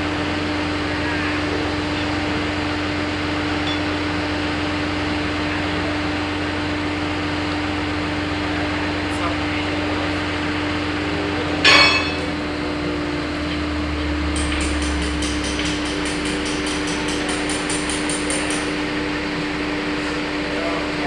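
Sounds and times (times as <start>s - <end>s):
hammer ringing blow on steel: 11.6s - 12.4s.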